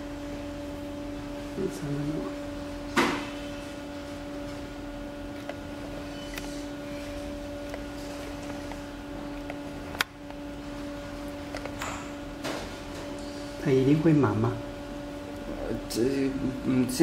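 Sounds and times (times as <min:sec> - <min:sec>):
printer humming: 0:00.0 - 0:17.0.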